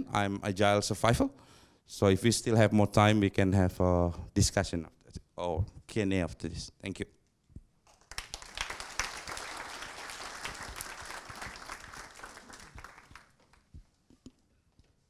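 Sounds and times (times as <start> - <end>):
audience applauding: 7.9 - 13.7.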